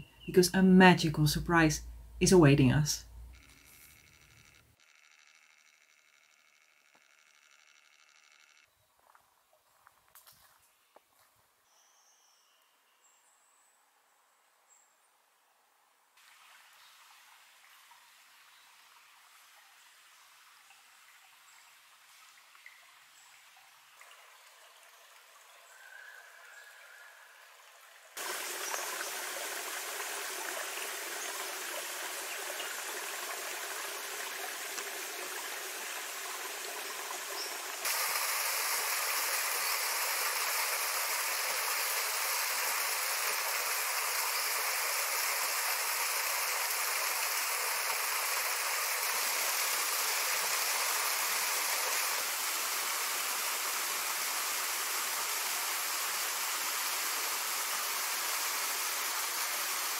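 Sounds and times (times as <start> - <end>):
waterfall splashing into pool: 16.2 - 19.2, 28.2 - 59.9
creek trickling over rocks: 16.2 - 59.9.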